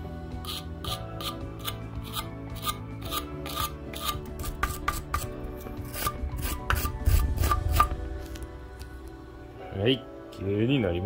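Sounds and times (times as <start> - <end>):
wire brush scrubbing metal: 0.4 - 7.9.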